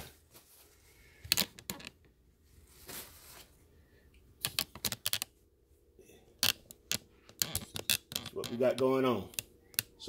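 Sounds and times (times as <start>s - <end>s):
soft rustle: 0.0s - 1.2s, 2.4s - 3.8s.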